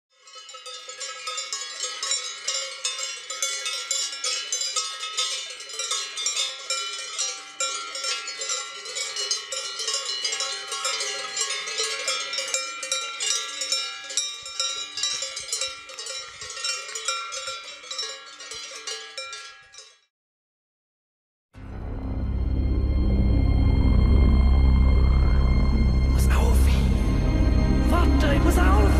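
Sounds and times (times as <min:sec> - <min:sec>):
cowbells clanging: 0:00.1 - 0:20.1.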